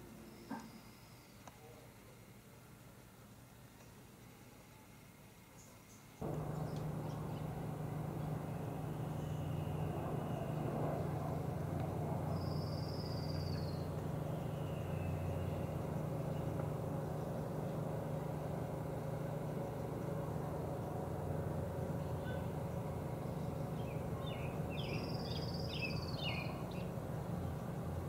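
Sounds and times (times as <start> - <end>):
low motor hum: 6.2 - 28.0.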